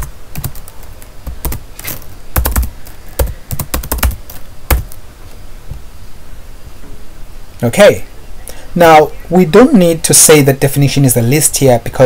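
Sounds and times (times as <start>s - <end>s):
computer keyboard typing: 0.0s - 5.0s.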